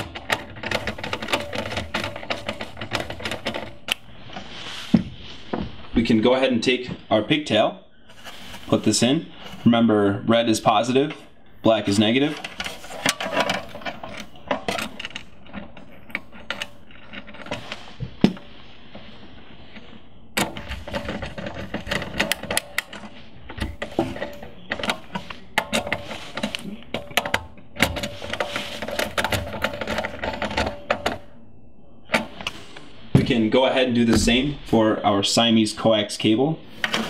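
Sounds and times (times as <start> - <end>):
wires being handled: 0.0 - 6.0, 11.1 - 31.2.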